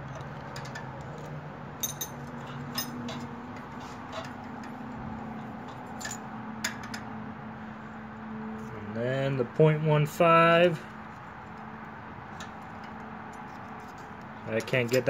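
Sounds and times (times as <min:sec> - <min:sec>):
metallic clicks of tools on engine: 0:00.0 - 0:07.1, 0:11.4 - 0:15.0
steady low hum: 0:00.0 - 0:15.0.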